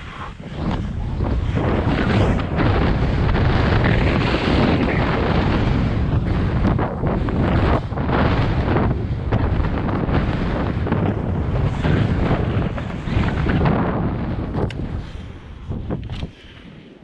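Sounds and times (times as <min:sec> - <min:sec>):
skis hissing through powder snow: 0:00.0 - 0:05.6
wind buffeting camera microphone: 0:00.0 - 0:17.0.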